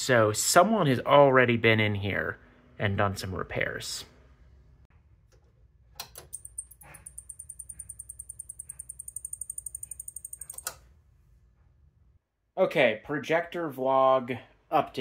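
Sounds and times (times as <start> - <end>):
power supply pulsing chirp: 6.4 - 10.7.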